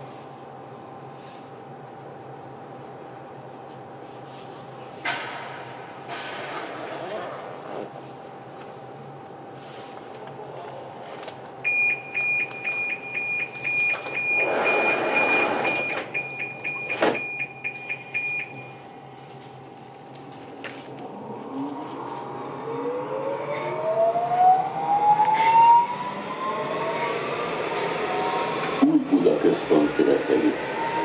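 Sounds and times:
metro train electric whine: 14.4 - 31.0.

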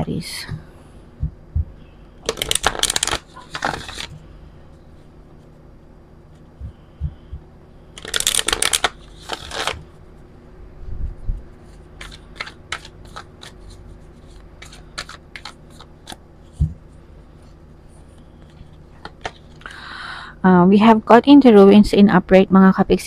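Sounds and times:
cards riffle shuffling: 2.2 - 4.2, 8.0 - 10.0, 11.9 - 16.6
card taps and flicks: 12.0 - 13.5.

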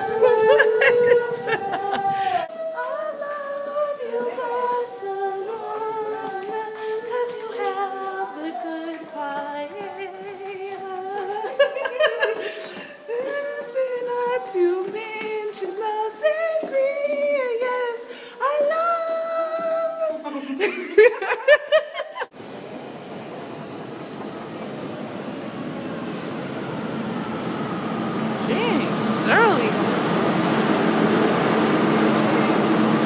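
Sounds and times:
woman singing: 0.0 - 21.3.

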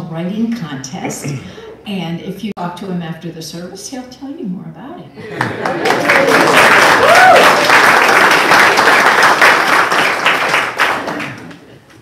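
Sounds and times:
person calling out: 1.0 - 1.6
crowd applauding: 5.3 - 11.7.

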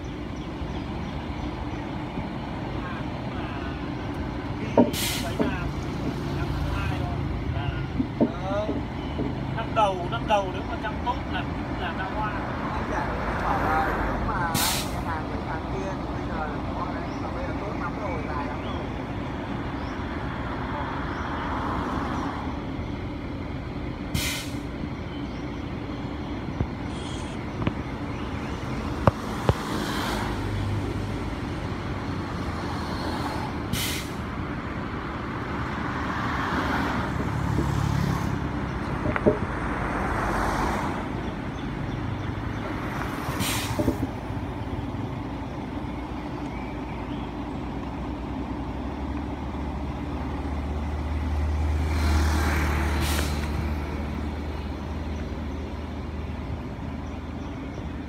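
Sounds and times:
diesel engine idling: 0.0 - 58.0
air brake hisses: 4.9 - 5.4, 14.5 - 15.0, 24.1 - 24.7, 33.7 - 34.2, 43.4 - 43.9, 53.0 - 53.5.

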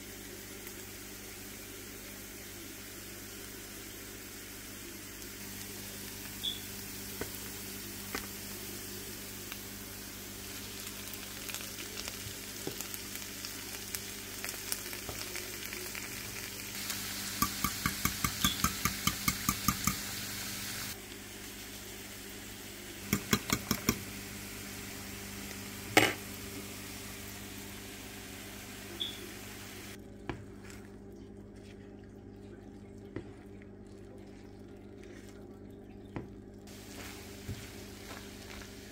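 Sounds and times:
vegetables sizzling in a frying pan: 0.0 - 30.0, 36.7 - 38.9.

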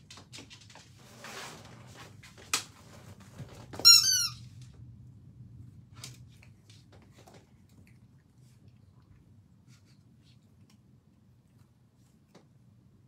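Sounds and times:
squeaky dog toy squeaking: 3.8 - 4.4.

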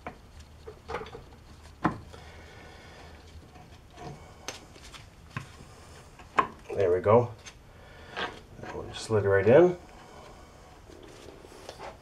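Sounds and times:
faint handling noise: 3.0 - 7.6.

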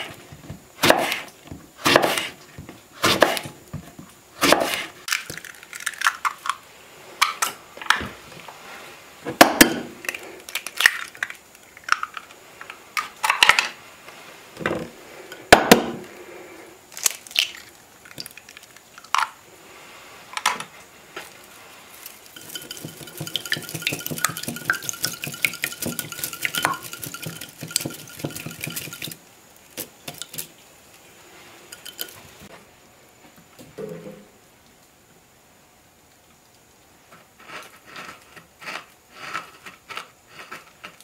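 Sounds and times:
twig whisk clattering in bowl: 22.0 - 29.2, 29.8 - 30.5, 31.7 - 32.2.

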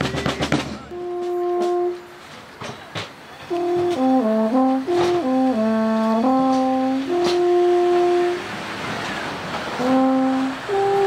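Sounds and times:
alphorn playing slow melody: 0.9 - 2.2, 3.5 - 8.5, 9.8 - 11.0.

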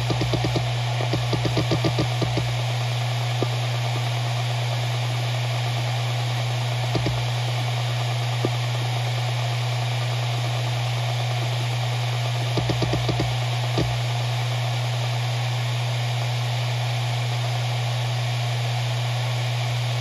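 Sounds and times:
hard drive head clicks: 0.0 - 2.6, 7.0 - 7.3, 12.6 - 14.0
hard drive spinning hum: 0.0 - 20.0.

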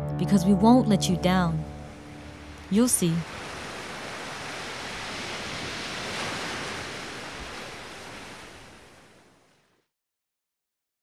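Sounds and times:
ocean surf washing onto beach: 1.8 - 9.8.

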